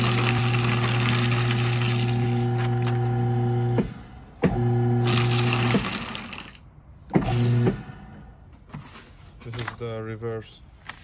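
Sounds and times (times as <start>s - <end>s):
paper shredder shredding: 0.0s - 6.6s, 7.2s - 7.9s.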